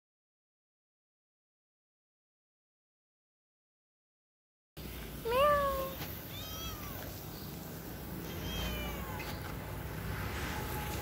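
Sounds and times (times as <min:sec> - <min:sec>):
cat meowing: 0:05.3 - 0:07.2, 0:08.2 - 0:09.4.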